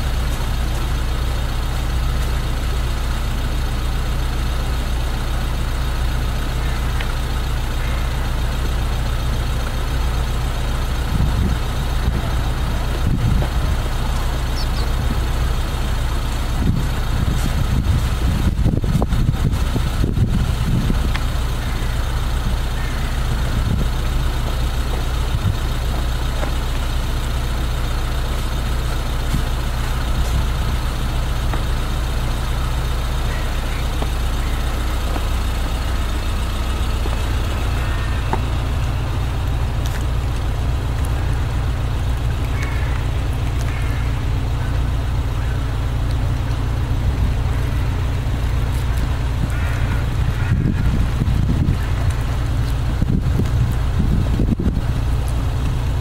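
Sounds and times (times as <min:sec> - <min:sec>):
city traffic rumble: 0:00.0 - 0:56.0
wind noise on microphone: 0:11.0 - 0:13.9, 0:16.4 - 0:22.6, 0:23.3 - 0:24.2, 0:49.0 - 0:56.0.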